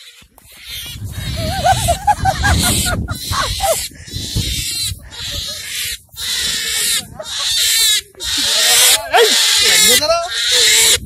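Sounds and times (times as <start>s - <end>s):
rabbit screaming: 2.7s - 11.0s.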